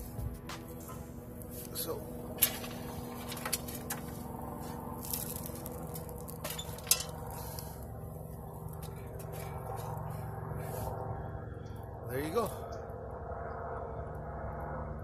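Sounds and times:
metal clinks and scrapes: 5.0 - 7.6.

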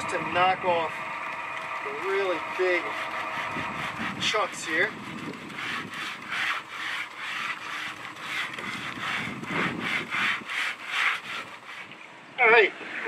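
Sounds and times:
sandpaper rubbing on vinyl: 1.9 - 11.9.

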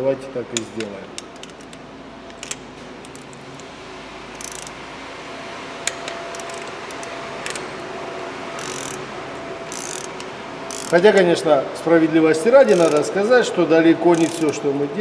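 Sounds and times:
metallic clicks: 0.6 - 3.7
torque wrench ratchet clicking: 4.3 - 4.8, 6.3 - 7.6, 8.6 - 9.0, 9.7 - 11.2, 12.6 - 13.1, 14.1 - 14.6.

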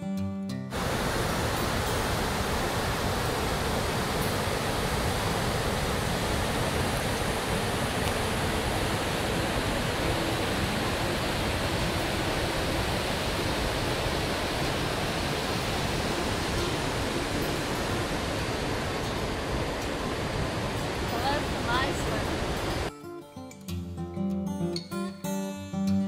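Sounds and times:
waterfall rushing: 0.7 - 22.9.

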